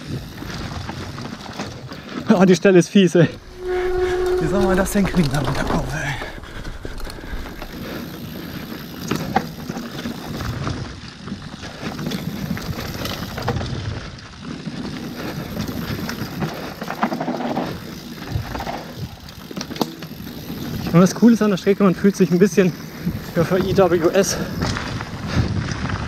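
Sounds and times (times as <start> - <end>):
bike tyre rumble on dirt: 0.0 - 26.0
bike clattering over bumps: 7.8 - 21.4.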